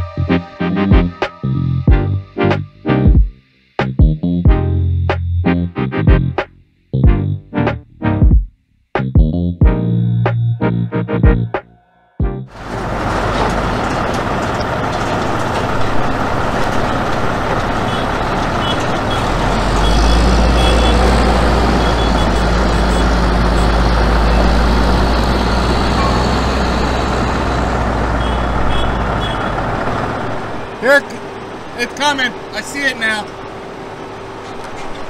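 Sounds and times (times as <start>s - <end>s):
diesel truck engine rumbling: 9.4s - 35.0s.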